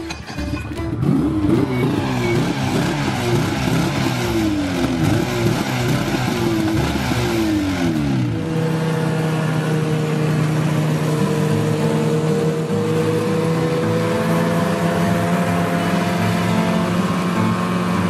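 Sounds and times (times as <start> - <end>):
snowmobile engine revving: 1.0 - 18.0.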